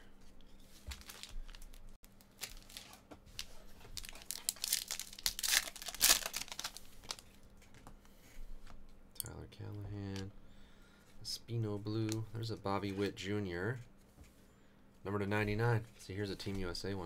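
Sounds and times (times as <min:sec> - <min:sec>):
foil pack crinkling and tearing: 0:00.8 - 0:07.3.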